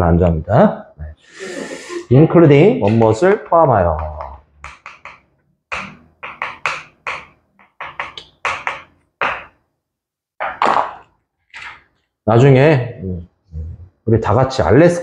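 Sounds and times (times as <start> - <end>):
sharp taps and knocks: 2.8 - 9.6.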